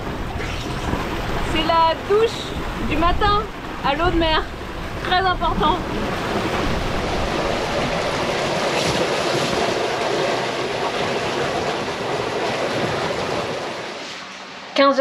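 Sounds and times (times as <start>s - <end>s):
sea water rushing past a boat: 0.0s - 14.8s.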